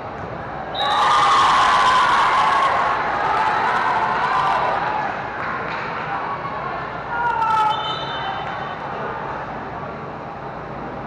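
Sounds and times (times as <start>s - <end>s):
spectators cheering and shouting: 0.7s - 5.4s.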